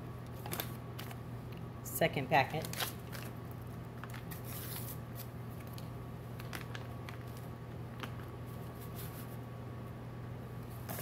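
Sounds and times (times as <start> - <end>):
steady low hum: 0.0 - 11.0
packet crinkling: 0.3 - 1.2, 2.5 - 8.3.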